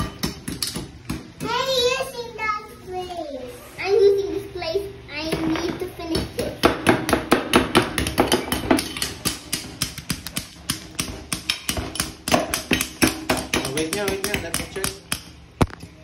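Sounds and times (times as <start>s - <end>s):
hammer and spoon chipping ice: 6.6s - 15.3s.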